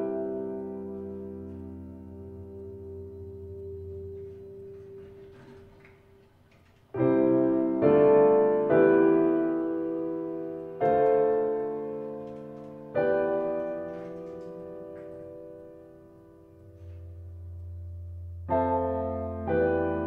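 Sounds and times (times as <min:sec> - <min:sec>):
piano chords ringing: 0:00.0 - 0:20.0.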